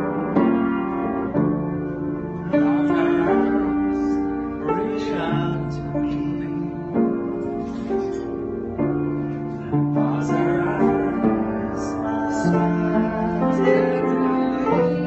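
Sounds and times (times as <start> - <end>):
upright piano chords: 0.0 - 15.0
man singing: 2.3 - 8.3, 9.5 - 15.0.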